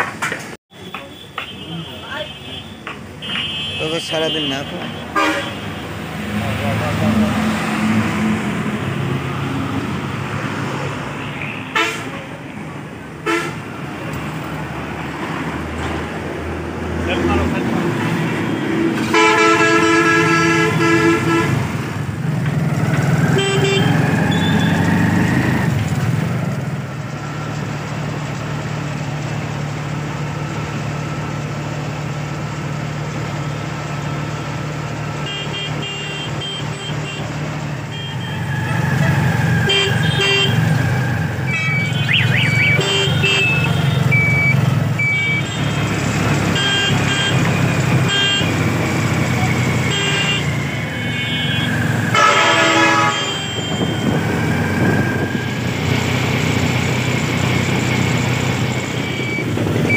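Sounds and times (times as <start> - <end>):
vehicle horns tooting: 0.7 - 8.2, 11.2 - 12.4, 13.2 - 13.8, 18.3 - 21.9, 23.2 - 25.6, 35.2 - 55.4.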